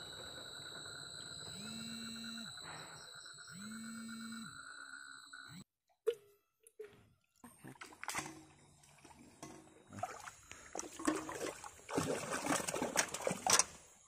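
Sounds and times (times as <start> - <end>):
water splashing and trickling: 6.1 - 14.0.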